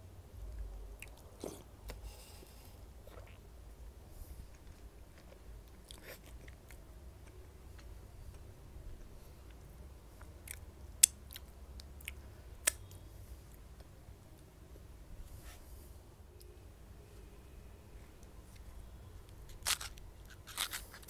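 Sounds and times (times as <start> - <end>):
lip smacks: 10.4 - 13.0.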